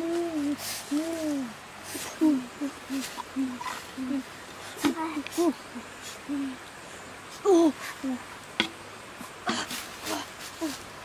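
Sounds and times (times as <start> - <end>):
wavering wordless vocal call: 0.0 - 6.7.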